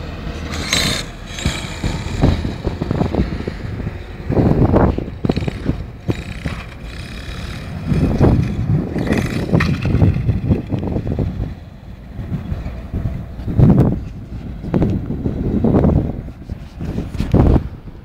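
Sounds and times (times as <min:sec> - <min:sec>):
low rumbles and bumps: 0:00.0 - 0:18.0
rc truck motor whine: 0:00.3 - 0:11.0.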